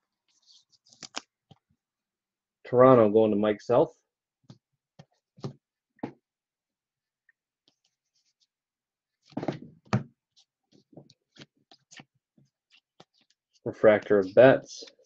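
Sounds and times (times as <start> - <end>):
cards clicking and tapping: 1.0 - 1.6.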